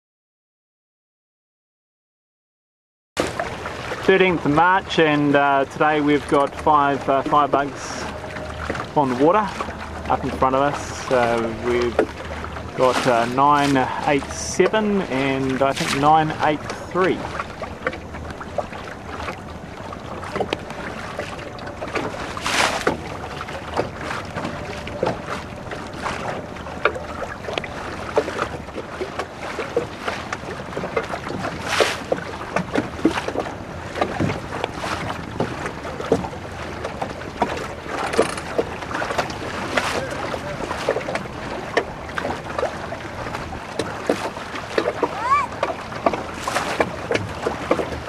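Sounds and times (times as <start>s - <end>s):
water splashing against boat hull: 3.2s - 48.0s.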